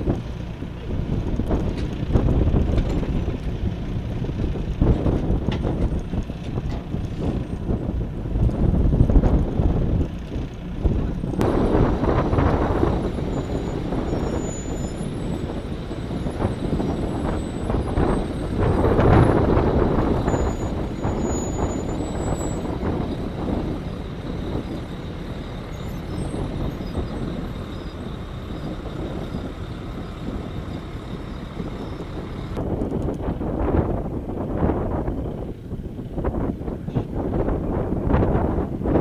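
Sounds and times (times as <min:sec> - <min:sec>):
vehicles driving on gravel: 0:00.0 - 0:39.0.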